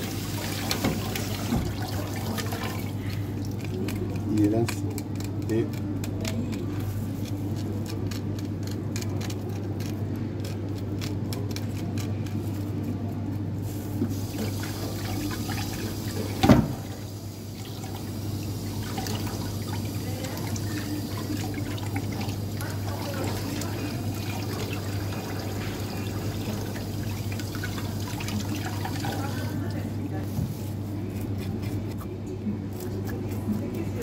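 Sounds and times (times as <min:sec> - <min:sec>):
tap running into metal sink: 0:00.4 - 0:02.5, 0:16.3 - 0:16.9.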